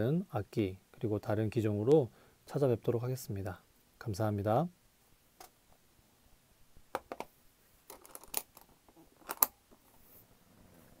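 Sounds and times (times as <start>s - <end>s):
case lid and catches clicking: 7.9s - 9.5s.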